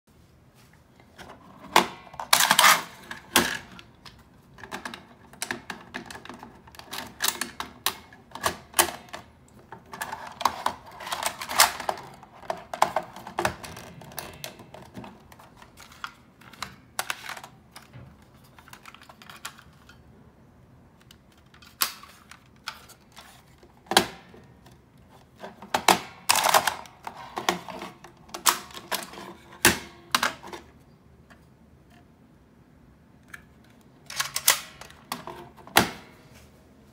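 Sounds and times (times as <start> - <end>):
hard plastic clicks and clatter: 1.2 - 20.0.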